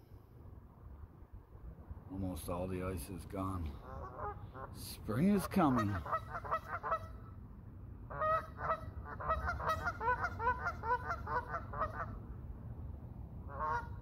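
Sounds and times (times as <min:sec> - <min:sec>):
geese honking: 0:03.7 - 0:07.2, 0:08.1 - 0:12.2, 0:13.5 - 0:14.0.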